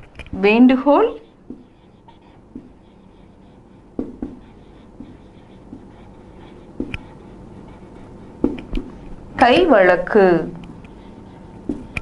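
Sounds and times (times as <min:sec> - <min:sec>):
marker pen scratching on whiteboard: 0:00.4 - 0:12.0
marker tip tapping board: 0:04.0 - 0:06.0, 0:06.8 - 0:07.1, 0:08.4 - 0:08.9, 0:11.7 - 0:12.0.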